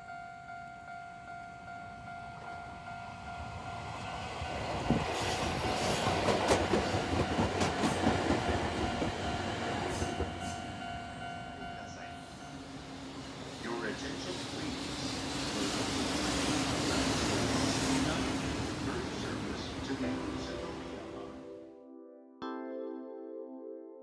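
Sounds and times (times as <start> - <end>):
level-crossing alarm dinging: 0.0 - 14.2
train wheels clacking over rail joints: 4.9 - 10.4.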